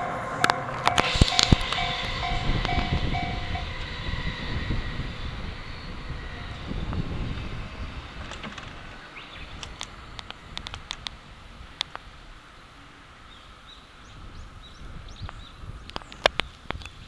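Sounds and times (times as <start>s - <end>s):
level-crossing alarm ding-ding: 0.0s - 5.7s
electric train rumbling: 0.0s - 17.0s.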